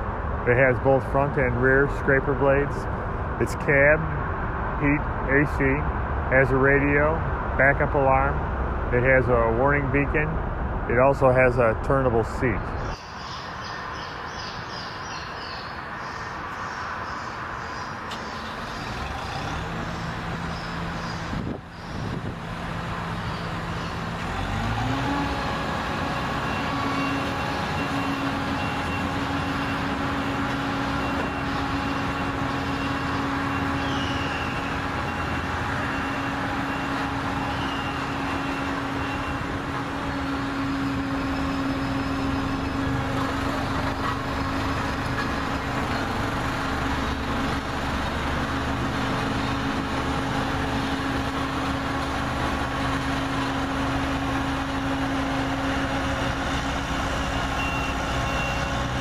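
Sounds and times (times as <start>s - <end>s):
diesel engine of compaction roller: 18.0s - 59.0s.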